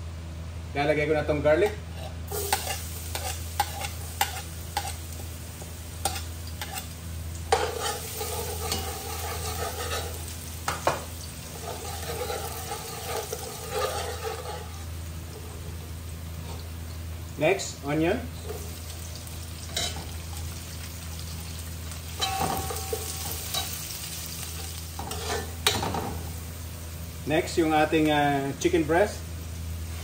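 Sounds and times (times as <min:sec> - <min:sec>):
garlic sizzling in hot oil: 0:02.0 - 0:30.0
metal spoon scraping pot: 0:07.5 - 0:10.2, 0:11.6 - 0:14.8
spoon clinking on pot: 0:22.2 - 0:23.7.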